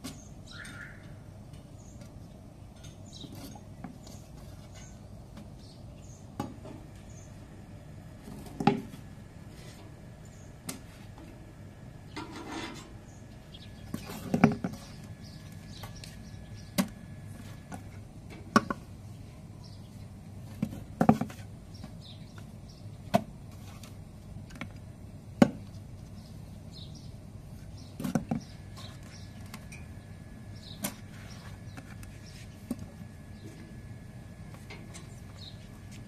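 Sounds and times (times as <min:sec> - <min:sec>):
faint bird chirps: 0:00.1 - 0:01.2.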